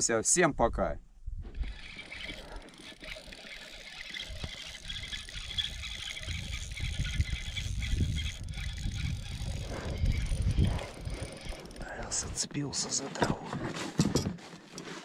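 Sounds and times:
fishing reel whirring: 0:01.5 - 0:12.4.

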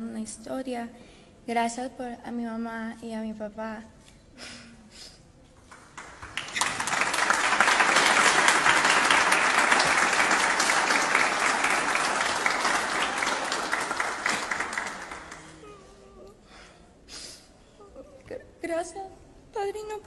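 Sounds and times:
audience applauding: 0:05.7 - 0:15.6.

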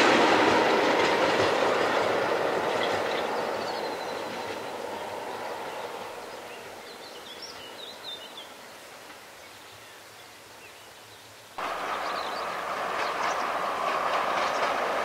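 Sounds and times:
diesel train rumble: 0:00.0 - 0:09.4, 0:11.6 - 0:15.0
loud train sound: 0:00.0 - 0:09.8, 0:11.5 - 0:15.0
bird chirping: 0:02.7 - 0:08.8, 0:09.4 - 0:14.8.

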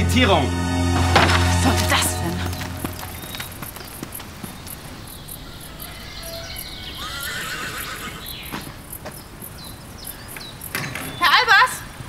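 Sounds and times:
horse whinnying: 0:05.5 - 0:08.4.

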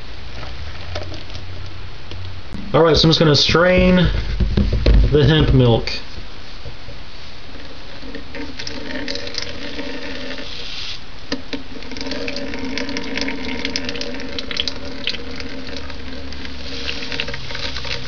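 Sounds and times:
milk trickling into bowl: 0:08.1 - 0:10.4, 0:11.7 - 0:18.0.

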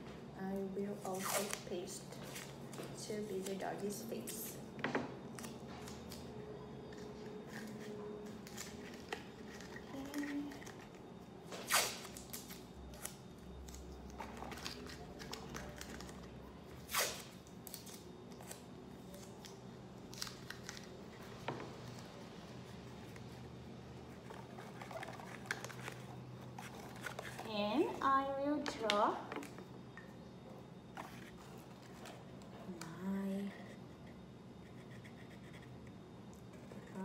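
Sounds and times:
masking tape ripping: 0:01.1 - 0:01.6, 0:11.6 - 0:13.8, 0:16.8 - 0:18.0.

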